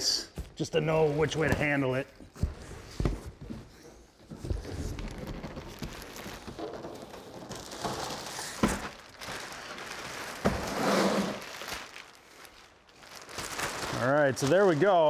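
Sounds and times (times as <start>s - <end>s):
plastic wrap rustling: 4.2s - 15.0s.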